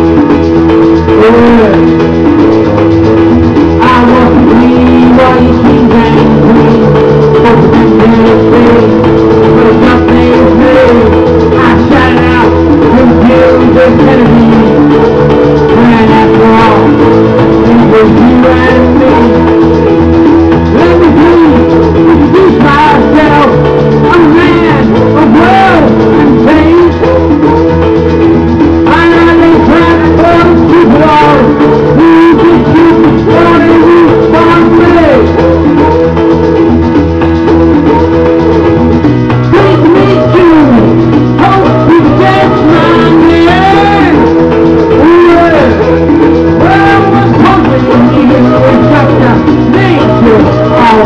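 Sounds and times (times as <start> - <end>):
karaoke backing track: 0.0 - 51.0
person singing: 0.0 - 51.0.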